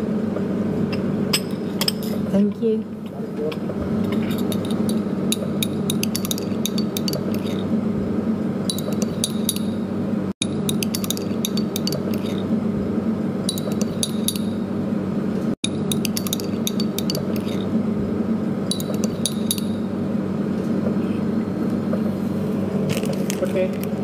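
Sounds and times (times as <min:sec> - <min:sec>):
steady low hum: 0:00.0 - 0:24.0
glassy metallic clinking: 0:15.7 - 0:17.7, 0:18.7 - 0:19.8.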